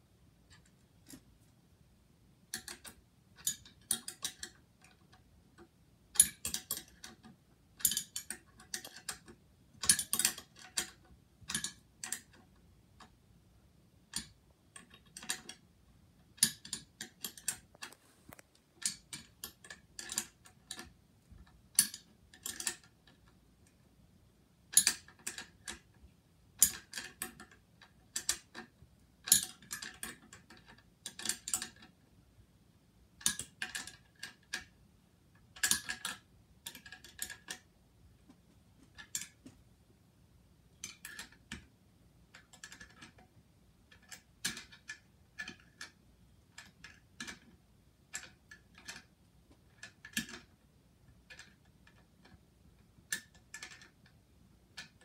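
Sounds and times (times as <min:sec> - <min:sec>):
sharp clicks of small parts: 0:02.5 - 0:13.1, 0:16.4 - 0:23.8, 0:24.7 - 0:26.0, 0:26.6 - 0:32.0, 0:33.2 - 0:34.7, 0:35.6 - 0:37.7, 0:40.8 - 0:41.7, 0:42.4 - 0:43.2, 0:43.9 - 0:49.1, 0:49.7 - 0:50.5, 0:53.1 - 0:55.0.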